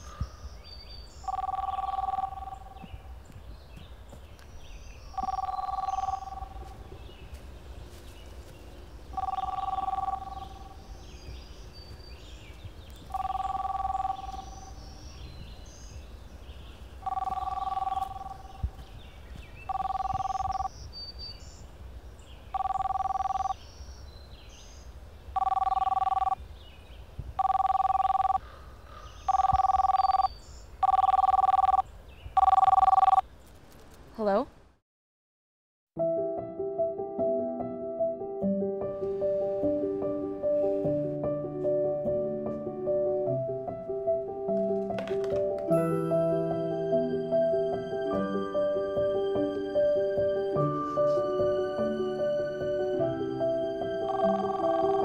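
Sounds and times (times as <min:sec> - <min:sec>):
telephone ringing: 0:01.3 - 0:02.8, 0:05.2 - 0:06.7, 0:09.2 - 0:10.8, 0:13.1 - 0:14.7, 0:17.0 - 0:18.6, 0:19.7 - 0:20.7, 0:22.6 - 0:23.6, 0:25.4 - 0:26.4, 0:27.4 - 0:28.4, 0:29.3 - 0:31.8, 0:32.4 - 0:33.2, 0:54.1 - 0:55.0.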